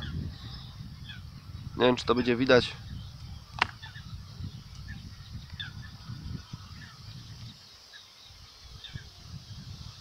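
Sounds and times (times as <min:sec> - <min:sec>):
faint bird chirps: 0:00.0 - 0:10.0
bait snapping: 0:03.5 - 0:03.8.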